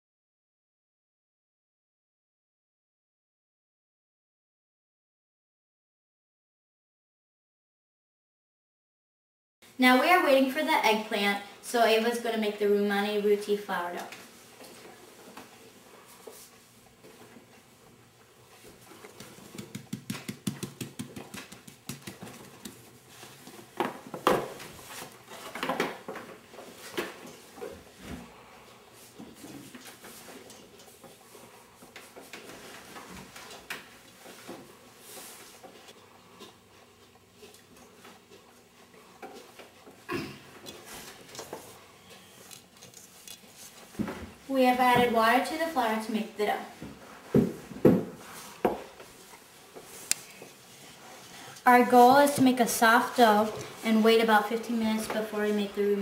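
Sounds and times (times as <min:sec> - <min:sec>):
hands mixing dough: 0:13.0 - 0:47.3.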